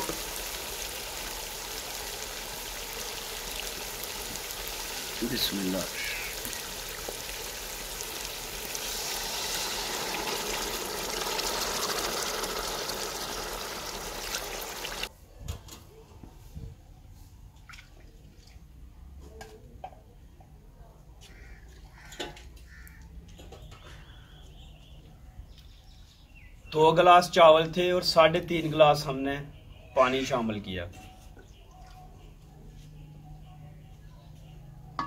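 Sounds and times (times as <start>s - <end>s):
water pouring into pot: 0.0s - 15.1s
water sizzling in hot oil: 0.0s - 15.1s.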